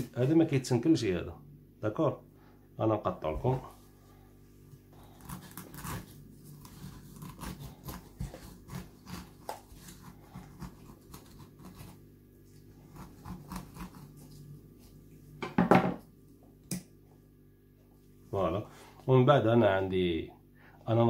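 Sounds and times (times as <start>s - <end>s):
knife sawing through pineapple: 5.0s - 14.5s.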